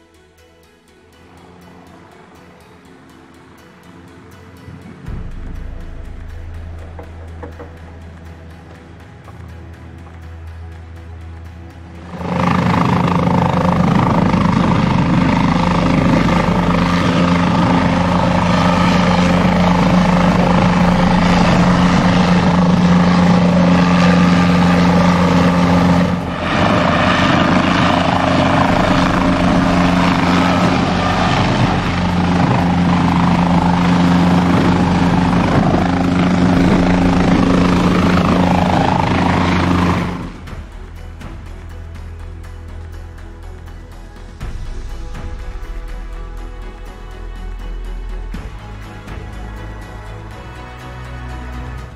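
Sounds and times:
helicopter rotor and engine drone: 0:01.4 - 0:51.9.

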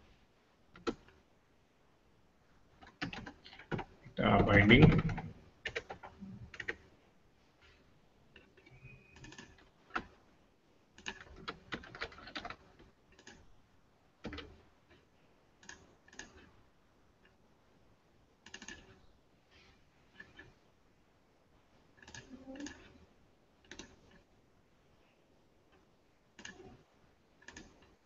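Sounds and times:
faint keyboard typing: 0:00.7 - 0:01.3, 0:02.6 - 0:07.0, 0:07.6 - 0:10.3, 0:10.9 - 0:13.6, 0:14.2 - 0:17.4, 0:18.4 - 0:20.8, 0:21.6 - 0:24.4, 0:25.0 - 0:28.0.

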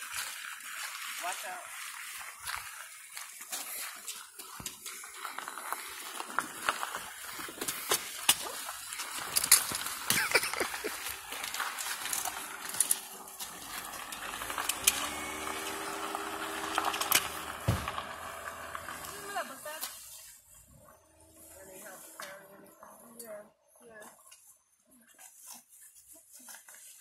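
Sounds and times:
bags rustling: 0:05.0 - 0:22.2
suitcases knocking and clicking: 0:09.3 - 0:18.5
low tonal hum: 0:11.2 - 0:19.5.

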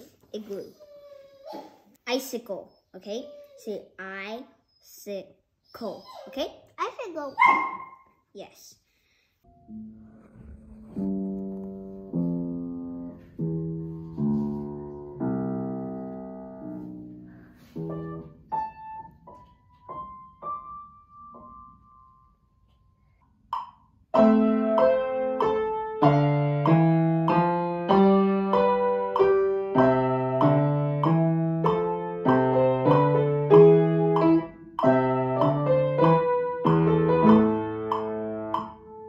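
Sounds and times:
upright piano playing: 0:09.5 - 0:22.5, 0:23.5 - 0:39.0.

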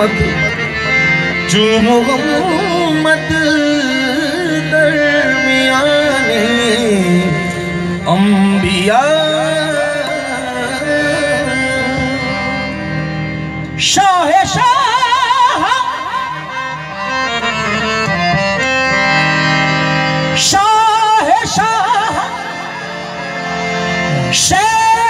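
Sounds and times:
harmonium chords: 0:00.0 - 0:25.0.

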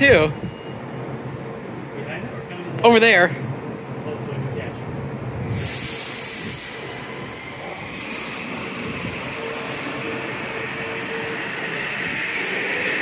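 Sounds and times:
air hiss: 0:05.4 - 0:13.0
train motors whining: 0:05.4 - 0:13.0.

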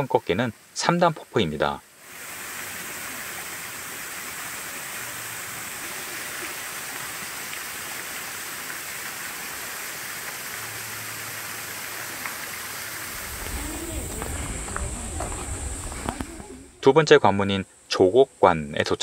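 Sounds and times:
waterfall rushing: 0:02.0 - 0:17.0.

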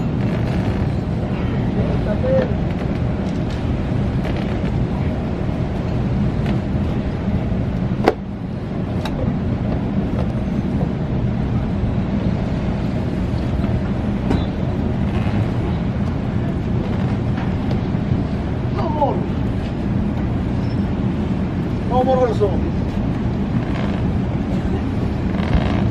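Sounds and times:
ship low rumble: 0:00.0 - 0:25.9
wind on microphone: 0:23.0 - 0:25.9.

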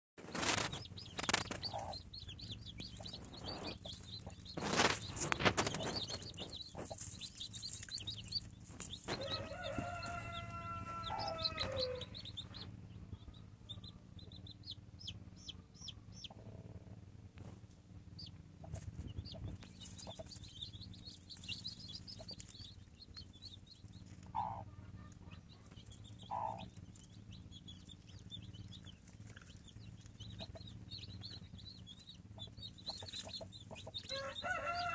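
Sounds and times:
loud rustle: 0:00.2 - 0:01.9, 0:03.0 - 0:10.2
hen clucking: 0:00.2 - 0:17.0, 0:18.2 - 0:34.9
chicks peeping: 0:00.2 - 0:34.9
hen drawn-out call: 0:09.2 - 0:12.2.

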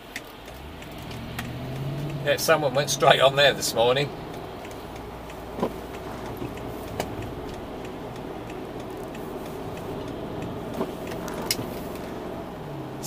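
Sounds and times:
car cabin road and engine noise: 0:00.0 - 0:13.0
light ticking: 0:00.0 - 0:13.0
faint clicks: 0:00.1 - 0:02.2, 0:04.2 - 0:12.4.

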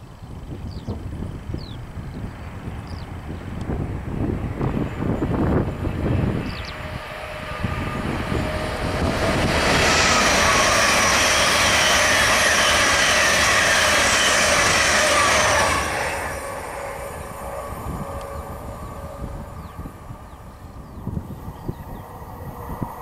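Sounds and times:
train wheel and rail noise: 0:00.0 - 0:23.0
whining tones falling in pitch: 0:05.5 - 0:23.0.

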